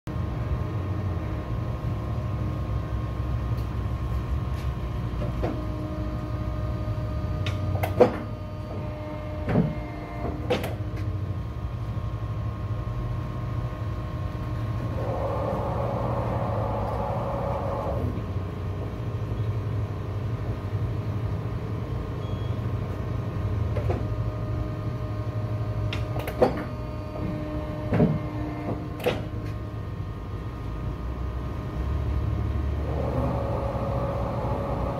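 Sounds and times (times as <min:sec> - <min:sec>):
paper cutter motor hum: 0:05.3 - 0:11.2, 0:14.4 - 0:18.4, 0:32.6 - 0:34.9
paper cutter clunks: 0:09.4 - 0:10.8, 0:27.9 - 0:29.3.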